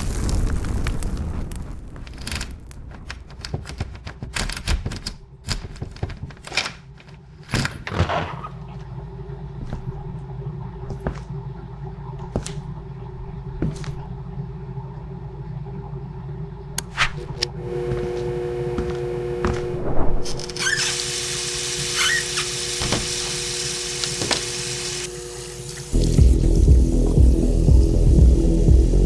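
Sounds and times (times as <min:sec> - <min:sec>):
steady low hum: 0:08.4 - 0:29.0.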